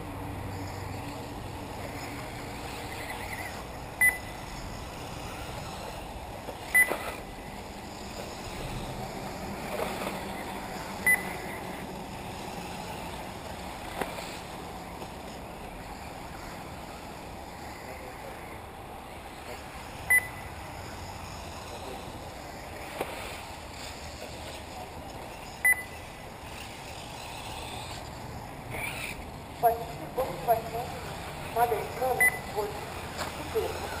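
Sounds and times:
outdoor background noise: 0:00.0 - 0:34.0
short electronic beeps: 0:04.0 - 0:04.4, 0:06.7 - 0:07.2, 0:11.0 - 0:11.5, 0:20.1 - 0:20.5, 0:25.6 - 0:26.0, 0:32.1 - 0:32.6.

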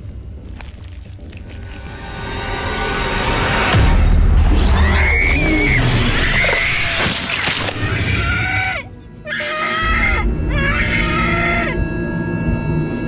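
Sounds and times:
tense film music: 0:00.0 - 0:13.0
girl screaming: 0:07.8 - 0:11.8.

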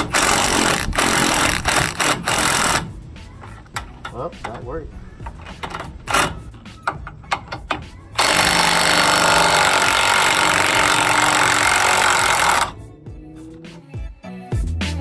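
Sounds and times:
impact wrench hammering: 0:05.3 - 0:12.8.

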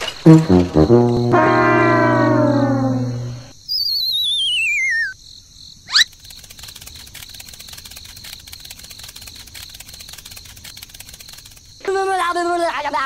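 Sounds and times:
warbling whistle sliding down: 0:00.8 - 0:05.1
crickets chirping: 0:02.1 - 0:12.5.

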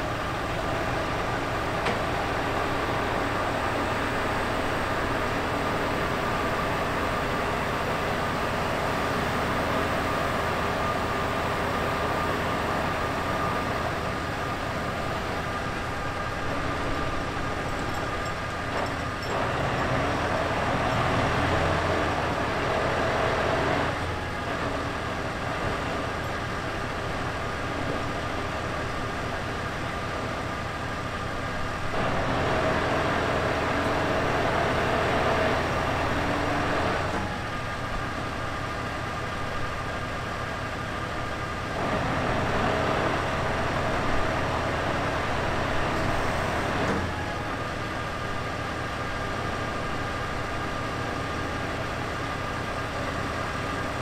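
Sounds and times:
diesel truck engine revving: 0:19.3 - 0:26.1, 0:31.9 - 0:37.4, 0:41.8 - 0:47.3.

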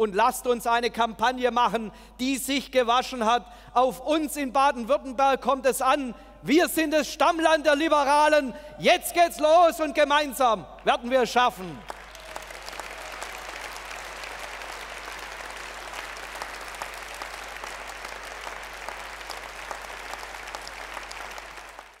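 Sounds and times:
large audience applauding: 0:11.7 - 0:22.0.

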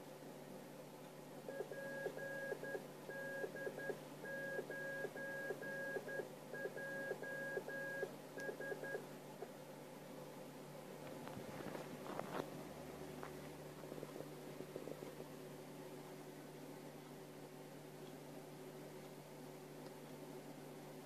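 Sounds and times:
steady low hum: 0:00.0 - 0:21.0
morse code beeps: 0:01.5 - 0:09.0.

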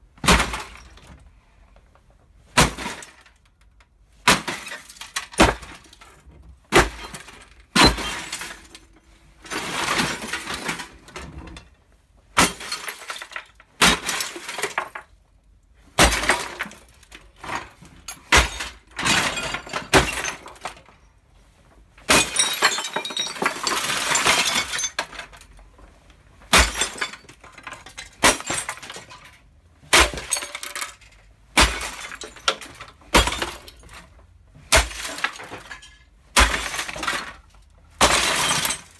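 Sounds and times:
wooden post smashing television: 0:00.2 - 0:01.1, 0:02.4 - 0:03.5, 0:04.2 - 0:06.0, 0:06.7 - 0:11.6, 0:12.3 - 0:15.2, 0:15.8 - 0:20.9, 0:22.0 - 0:25.4, 0:26.4 - 0:38.9
plastic cracking and glass breaking: 0:02.5 - 0:11.7, 0:12.4 - 0:15.3, 0:16.0 - 0:20.9, 0:22.0 - 0:25.6, 0:26.5 - 0:38.9
debris clattering: 0:04.3 - 0:11.7, 0:15.9 - 0:21.0, 0:22.0 - 0:25.6, 0:26.5 - 0:38.9.

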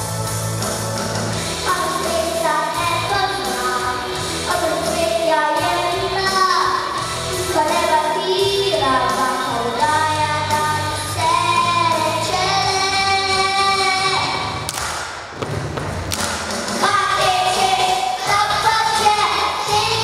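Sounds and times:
thuds: 0:14.7 - 0:16.8
children singing together: 0:16.8 - 0:20.0.

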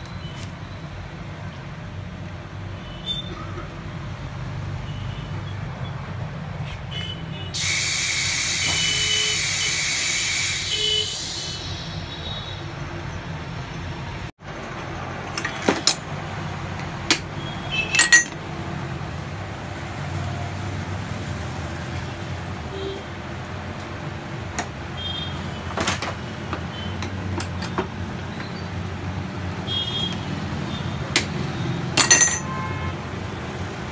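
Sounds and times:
metallic clinks and knocks: 0:17.9 - 0:18.4, 0:32.0 - 0:32.5.

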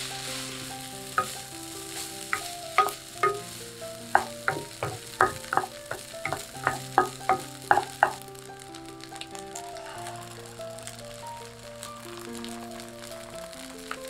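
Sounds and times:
wooden spatula scraping a pan: 0:00.0 - 0:08.2
rice frying: 0:00.0 - 0:14.0.

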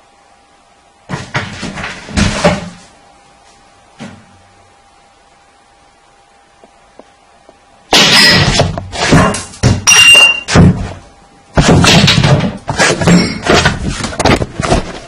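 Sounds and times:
heavy knocks and thuds: 0:08.0 - 0:09.9, 0:10.5 - 0:14.9.

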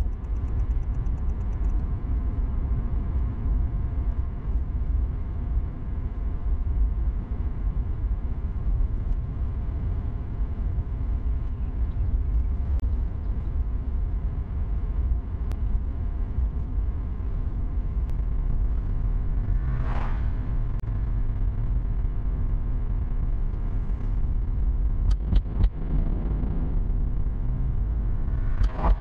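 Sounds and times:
faint ticks: 0:00.0 - 0:01.9
road and tyre rumble: 0:00.0 - 0:29.0.

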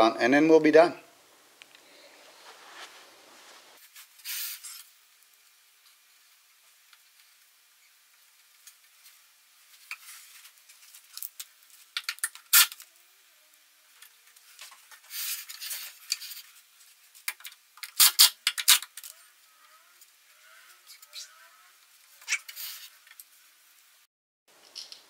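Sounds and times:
plastic caps clicking into place: 0:17.3 - 0:19.1.

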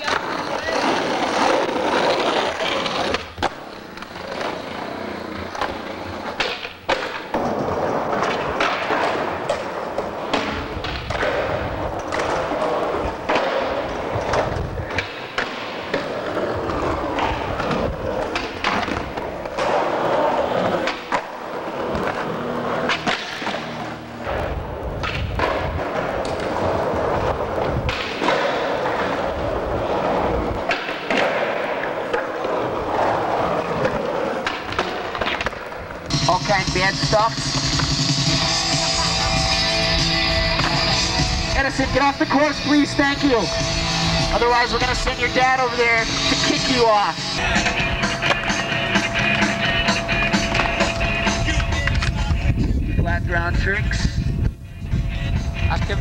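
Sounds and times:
skateboard wheels rolling on concrete: 0:00.0 - 0:56.0
skateboard deck clacks: 0:05.3 - 0:39.4, 0:46.3 - 0:52.4.

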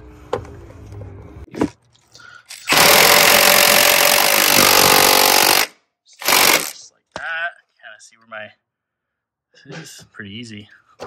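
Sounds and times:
impact wrench hammering: 0:02.7 - 0:06.7.

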